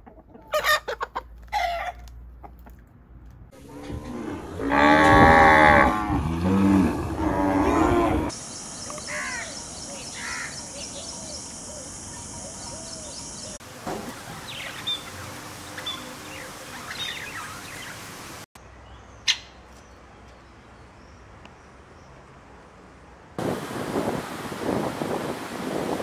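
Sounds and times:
bird calls: 0:08.3 - 0:13.6, 0:14.4 - 0:18.2, 0:19.2 - 0:20.0
steady high hiss: 0:08.3 - 0:18.5
wind and surf on beach: 0:23.4 - 0:26.0.

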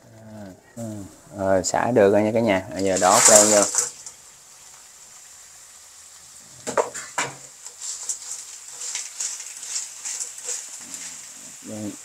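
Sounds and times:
faint sizzle: 0:00.0 - 0:12.0
metal utensil clanking on pan: 0:03.0 - 0:04.1
scraping and clicking: 0:03.0 - 0:04.2, 0:07.7 - 0:11.3.

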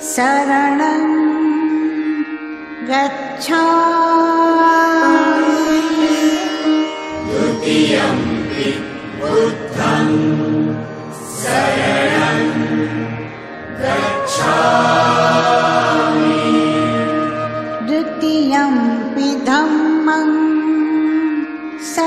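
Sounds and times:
chorus chanting: 0:07.1 - 0:18.1.

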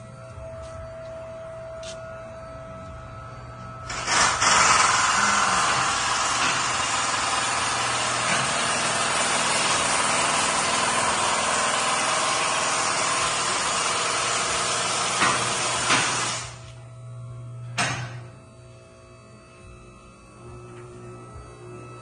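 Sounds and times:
low steady hum: 0:00.0 - 0:03.9, 0:16.5 - 0:22.0
loud machine noise with hiss: 0:03.8 - 0:16.8.

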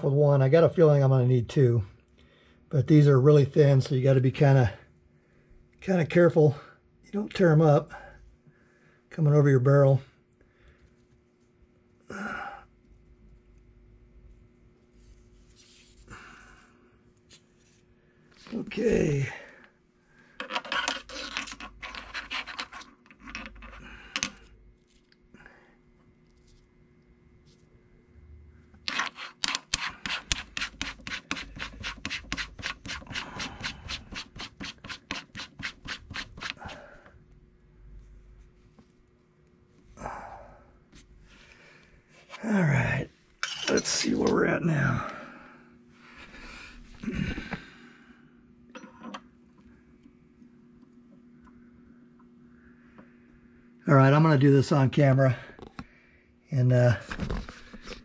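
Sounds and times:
faint steady hum: 0:00.0 - 0:58.0
barrel nut scraping on threads: 0:20.4 - 0:24.4, 0:28.8 - 0:36.8, 0:43.4 - 0:44.4
man sighing: 0:47.0 - 0:48.0.

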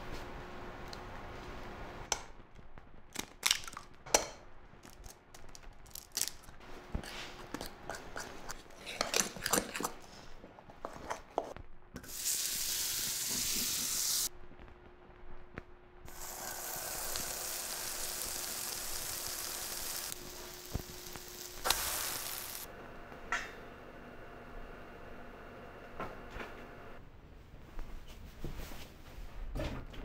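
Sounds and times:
frying pan sizzling: 0:12.0 - 0:14.3, 0:16.1 - 0:22.7.

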